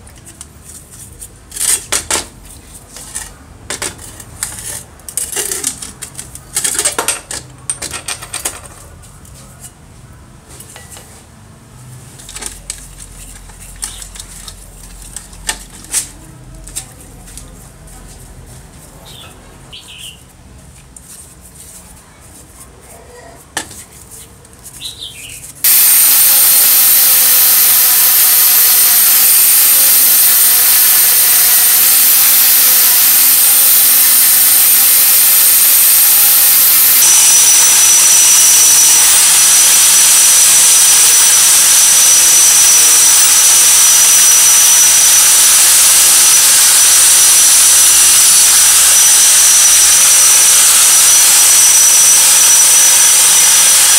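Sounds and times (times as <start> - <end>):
angle grinder on metal: 25.6 - 53.9.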